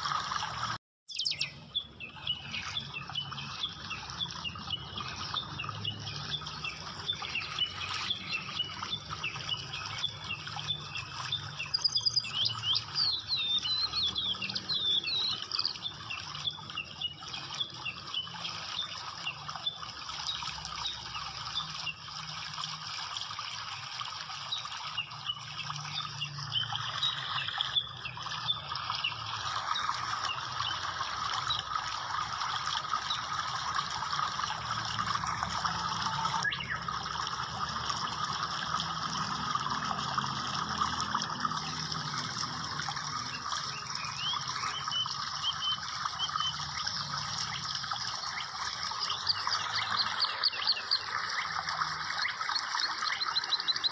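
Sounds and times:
small birds chirping: 1.1s - 22.0s, 43.2s - 47.6s, 48.2s - 53.9s.

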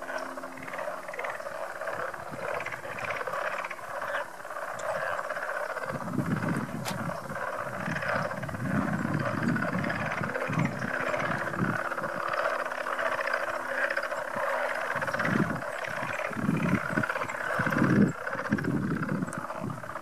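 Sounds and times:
chorus of frogs croaking: 0.0s - 20.0s.

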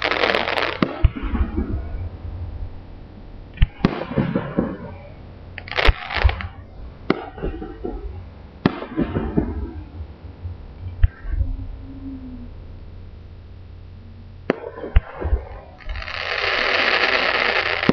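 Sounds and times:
firework shells bursting: 0.0s - 2.0s, 3.5s - 10.0s, 14.4s - 17.9s.

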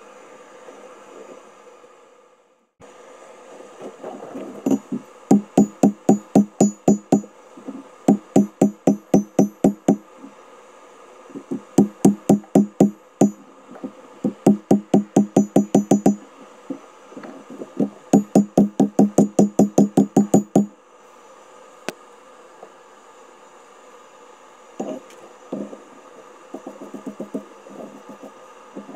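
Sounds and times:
gas forge hissing: 4.6s - 20.8s
hammer ringing on anvil: 4.7s - 7.3s, 8.1s - 10.0s, 11.8s - 13.4s, 14.5s - 16.2s.

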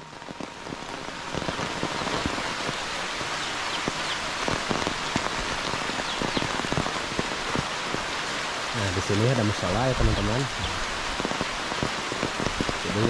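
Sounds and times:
raindrops ticking on surfaces: 0.0s - 13.0s
steady rain falling: 0.0s - 13.0s.

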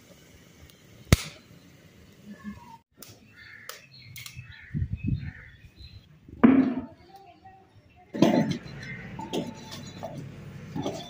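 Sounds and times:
wood fire popping: 0.6s - 2.4s
crows cawing: 3.4s - 3.9s, 4.5s - 5.6s.

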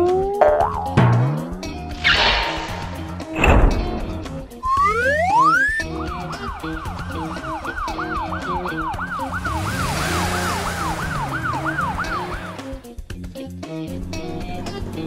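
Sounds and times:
background music: 0.0s - 15.0s
ambulance siren yelp: 4.6s - 12.8s.

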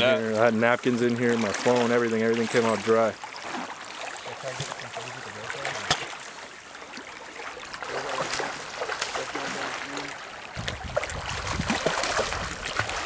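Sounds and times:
river running over shallows: 0.0s - 13.0s
fish splashing at the surface: 1.2s - 13.0s.

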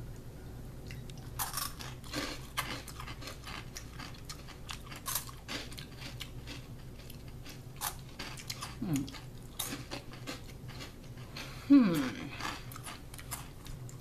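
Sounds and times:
potato sticks crunching: 0.9s - 14.0s.

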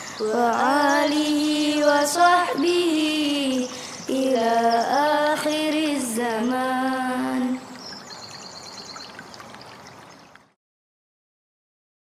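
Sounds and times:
faint high chirping: 0.0s - 5.6s, 7.6s - 10.3s
high voice singing prayer: 0.0s - 7.8s.

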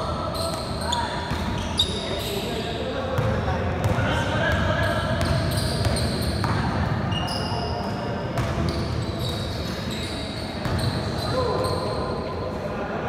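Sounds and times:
sneakers squeaking: 0.0s - 12.4s
basketball bouncing: 5.2s - 7.0s.

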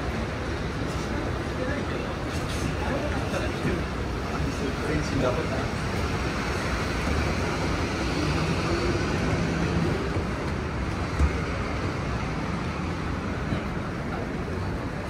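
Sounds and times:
road traffic noise: 0.0s - 15.0s.

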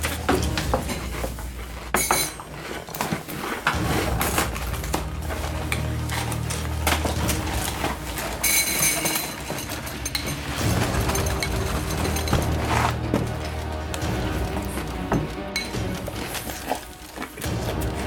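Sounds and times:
spoons clinking in cereal bowls: 0.0s - 18.0s.

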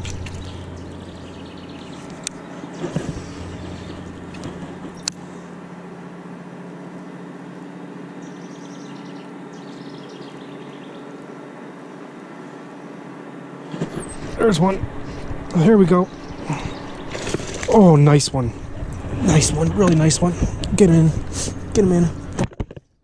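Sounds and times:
small motor humming: 0.0s - 22.8s.

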